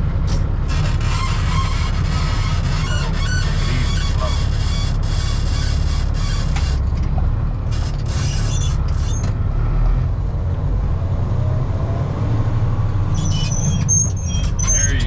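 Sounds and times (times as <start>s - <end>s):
diesel truck engine running: 0.0s - 11.6s, 12.2s - 15.0s
cab rattles and creaks: 0.2s - 9.4s, 13.1s - 15.0s.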